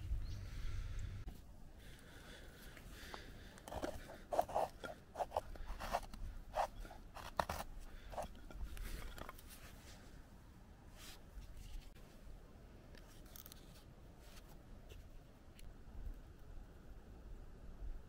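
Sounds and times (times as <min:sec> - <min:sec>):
knife shaving wood: 0:03.6 - 0:09.5.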